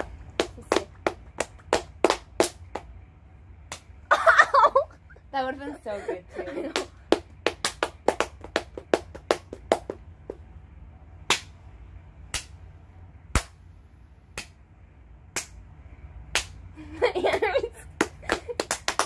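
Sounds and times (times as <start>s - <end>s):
hands slapping: 0.0s - 2.9s, 3.7s - 3.9s, 6.7s - 10.4s, 11.3s - 11.6s, 12.3s - 12.6s, 13.3s - 13.6s, 14.4s - 14.6s, 15.3s - 15.6s, 16.3s - 16.6s, 17.3s - 19.0s.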